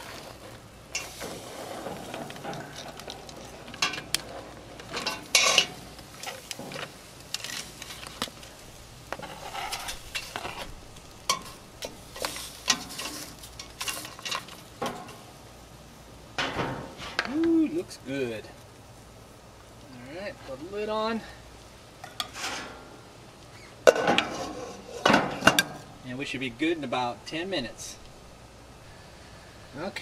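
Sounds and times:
metal tongs clacking and scraping: 0.0 - 8.5, 11.3 - 15.2
steaming pot hissing: 0.0 - 15.3.

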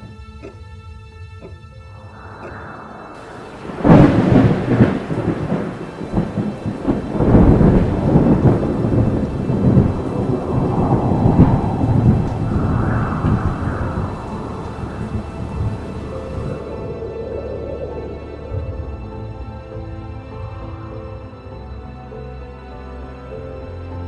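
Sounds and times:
rain falling: 2.0 - 20.0
thunder crack and rumble: 2.0 - 20.4.

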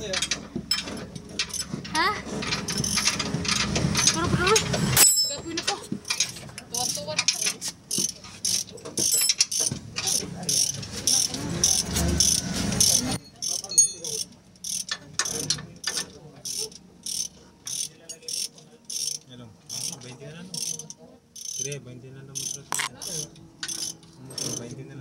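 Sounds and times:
ratchet wrench clicking: 2.5 - 4.2, 6.1 - 20.0, 20.6 - 21.7, 22.4 - 24.6.

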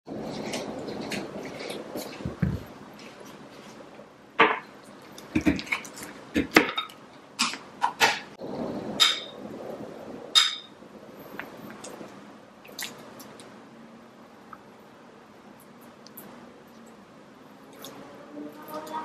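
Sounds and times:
glass ringing: 10.4 - 10.8.

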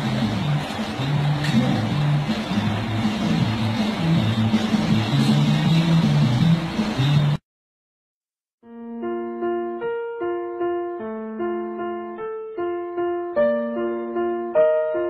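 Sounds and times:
gentle piano notes: 8.6 - 15.0.

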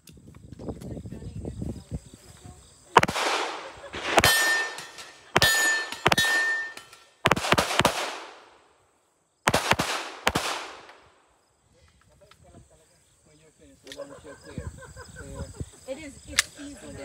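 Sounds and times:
pistol shots echoing: 3.0 - 8.7, 9.5 - 11.2
metallic ringing: 4.0 - 7.2.

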